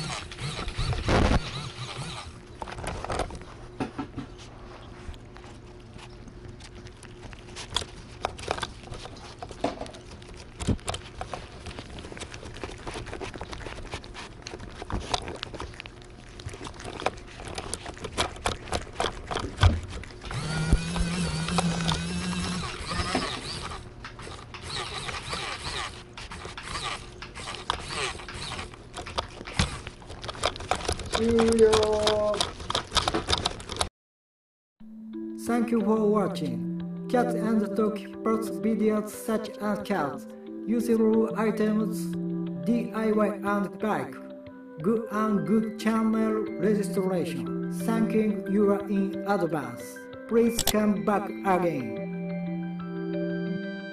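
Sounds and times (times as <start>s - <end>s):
cats licking and lapping: 2.6s - 33.9s
pitched voice-like sound: 31.2s - 32.5s.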